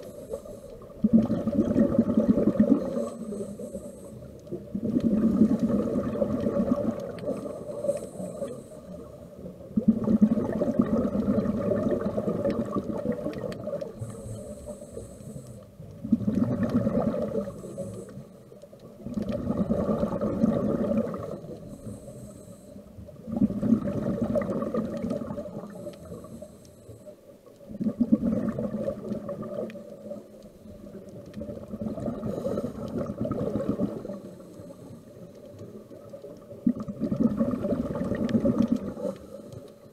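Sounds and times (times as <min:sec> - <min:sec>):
regulator inhale hiss: 0:00.0 - 0:01.0, 0:02.8 - 0:04.7, 0:07.2 - 0:09.4, 0:13.8 - 0:15.9, 0:17.2 - 0:18.6, 0:21.3 - 0:23.1, 0:25.5 - 0:27.4, 0:32.1 - 0:33.1, 0:34.0 - 0:35.6, 0:38.8 - 0:39.9
exhaled bubbles rumbling underwater: 0:00.0 - 0:39.9.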